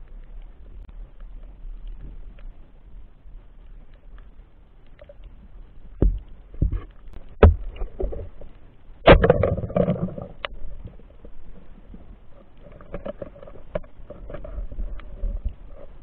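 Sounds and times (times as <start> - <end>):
underwater rustling: 0.0 - 16.0
underwater knocking and clatter: 5.8 - 16.0.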